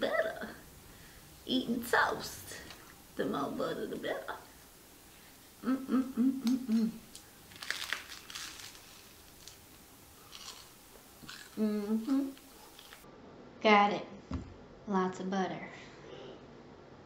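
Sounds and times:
woman humming mm of relish: 0:05.5 - 0:07.2, 0:11.2 - 0:12.8.

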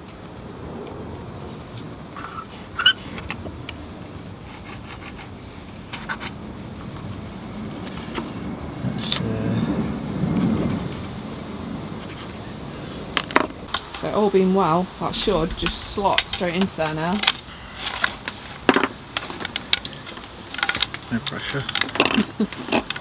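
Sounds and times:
pencil scratching on plywood: 0:04.4 - 0:06.3
low background rumble: 0:13.5 - 0:19.2.

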